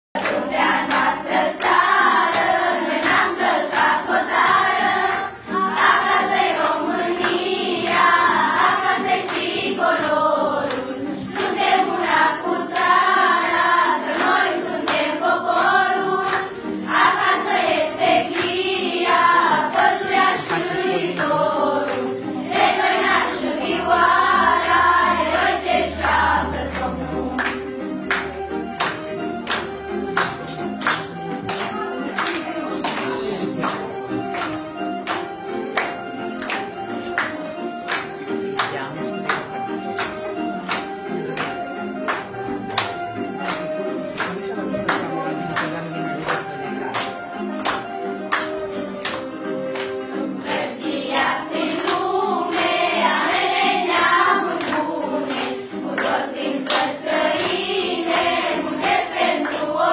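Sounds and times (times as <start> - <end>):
children singing in chorus: 0.2 - 27.5, 50.4 - 59.9.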